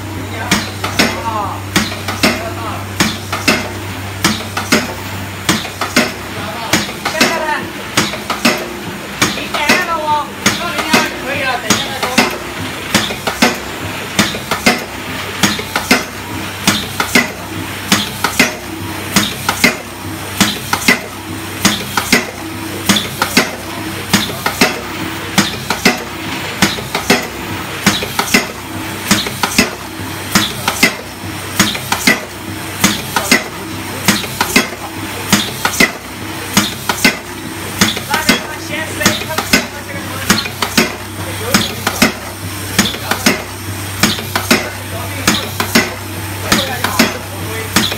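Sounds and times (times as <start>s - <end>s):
motor hum: 0.0s - 47.9s.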